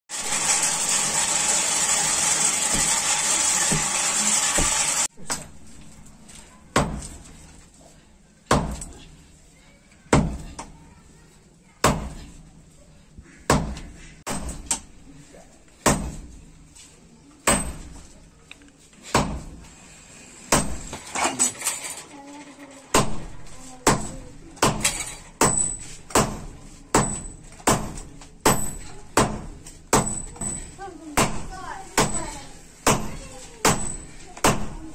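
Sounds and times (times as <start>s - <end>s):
hammer striking iron on anvil: 23.9s - 30.6s.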